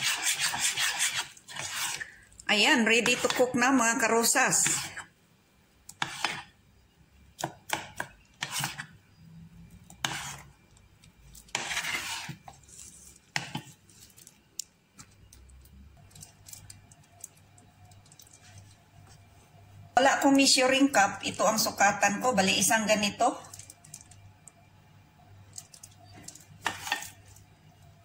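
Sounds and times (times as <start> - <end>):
spoon scraping ceramic bowl: 0.0 - 2.1, 8.4 - 8.9, 10.0 - 10.5, 11.4 - 13.8.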